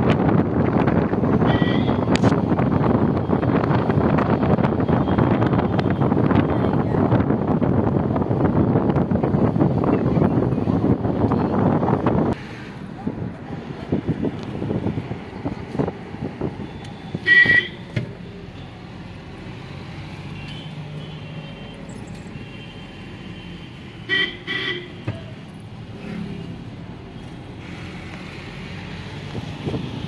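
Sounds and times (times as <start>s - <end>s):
car running and road noise: 0.0s - 30.0s
vehicle horn honking: 17.2s - 17.8s, 24.1s - 25.0s.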